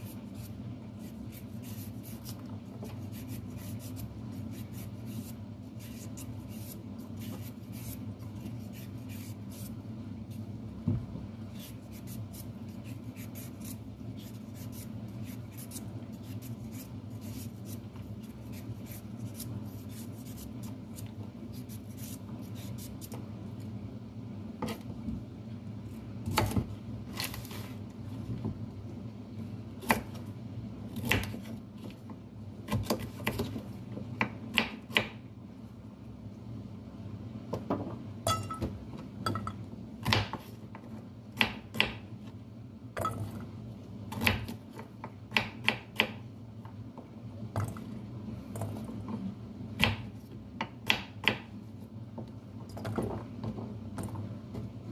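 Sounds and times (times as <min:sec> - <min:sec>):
steady low hum: 0:00.0 - 0:54.9
vegetable peeler scraping carrots: 0:11.5 - 0:23.1
knife chopping on cutting board: 0:40.0 - 0:40.6, 0:41.4 - 0:42.0, 0:44.1 - 0:46.2, 0:49.8 - 0:51.5.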